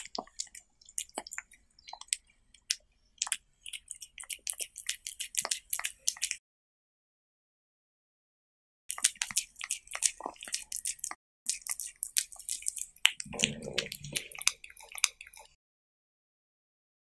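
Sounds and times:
cat licking and chewing: 0.0s - 6.4s, 8.9s - 15.6s.

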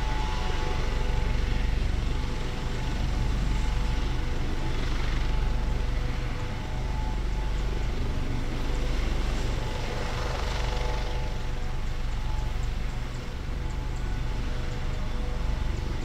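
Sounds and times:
helicopter rotor thrum: 0.0s - 16.0s
turbine whine: 0.0s - 16.0s.

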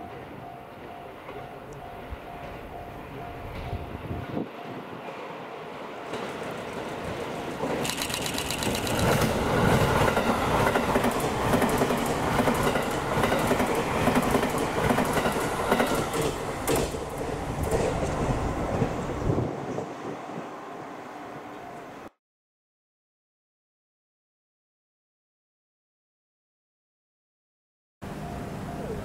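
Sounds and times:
train passing with rapid clicking: 0.0s - 22.1s.

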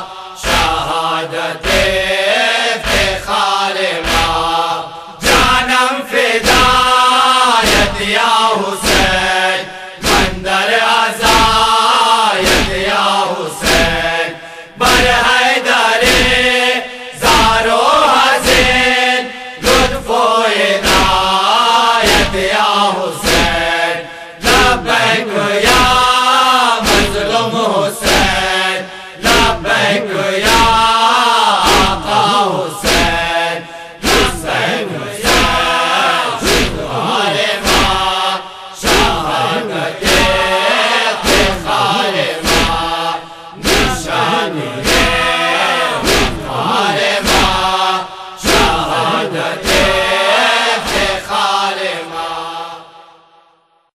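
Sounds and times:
group of voices chanting: 0.0s - 53.7s
heavy thumps beat: 4.0s - 5.7s, 6.4s - 7.0s, 8.8s - 10.5s, 11.2s - 11.8s, 12.4s - 12.9s, 13.6s - 14.2s, 16.0s - 16.6s, 17.2s - 17.7s, 18.4s - 19.0s, 20.8s - 21.4s, 22.0s - 22.5s, 23.2s - 23.8s, 24.4s - 26.2s, 26.8s - 28.6s, 29.2s - 30.9s, 31.6s - 33.4s, 34.0s - 35.8s, 36.4s - 40.6s, 41.2s - 45.4s, 46.0s - 47.8s, 48.4s - 50.1s.

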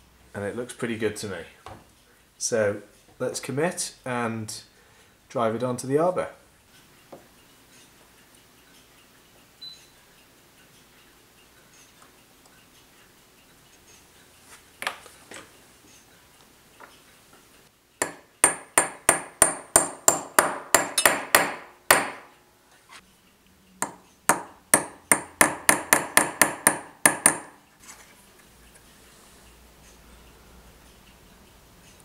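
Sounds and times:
hammer tapping metal punch: 18.0s - 22.4s, 23.8s - 27.6s.

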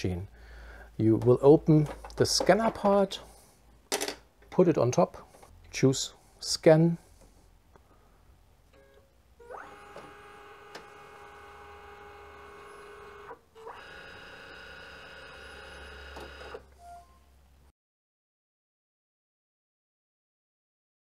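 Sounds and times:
scanner motor whining: 9.4s - 16.6s.

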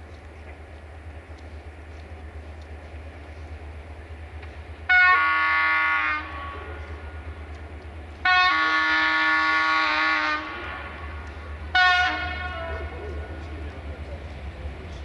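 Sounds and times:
locomotive air horn: 4.9s - 7.2s, 8.2s - 12.9s.

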